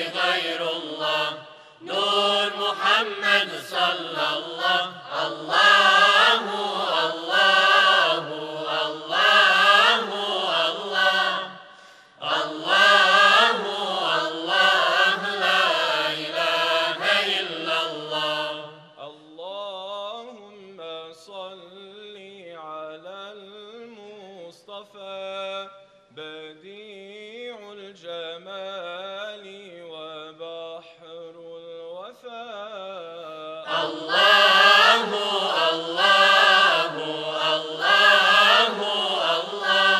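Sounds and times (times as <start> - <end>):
male choir singing unaccompanied: 0.0 - 11.6, 12.2 - 19.2, 33.2 - 39.9.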